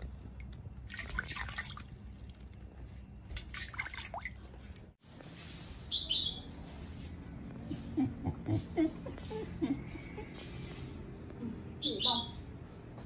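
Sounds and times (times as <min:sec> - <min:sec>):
water splashing in metal basin: 0:00.4 - 0:04.9.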